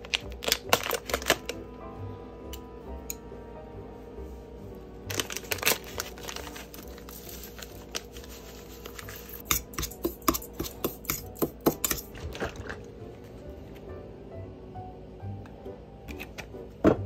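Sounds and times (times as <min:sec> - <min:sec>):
paper pouch crinkling: 0:00.0 - 0:01.6, 0:05.1 - 0:09.5
spoon stirring in metal bowl: 0:08.2 - 0:12.5.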